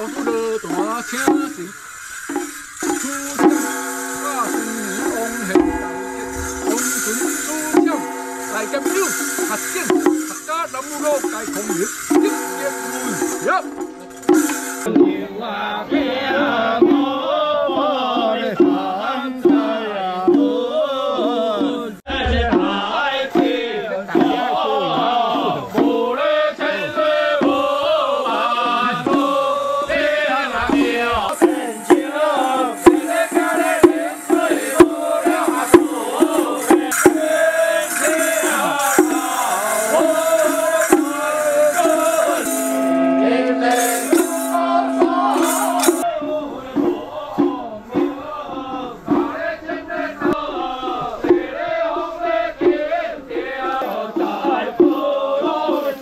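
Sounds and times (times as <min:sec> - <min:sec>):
music with wavering melody: 0:00.0 - 0:15.0, 0:31.0 - 0:46.1
bright hissing percussion wash: 0:00.0 - 0:56.0
rattling percussion: 0:00.0 - 0:56.0
sharp strikes: 0:02.3 - 0:15.1, 0:30.7 - 0:46.1.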